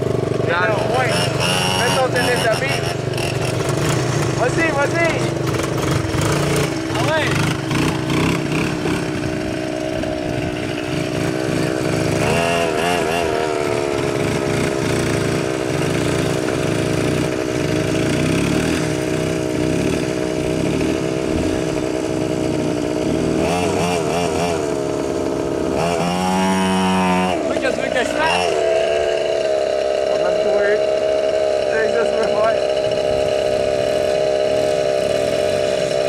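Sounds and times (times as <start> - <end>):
quad bike engine under throttle: 0.0 - 36.0.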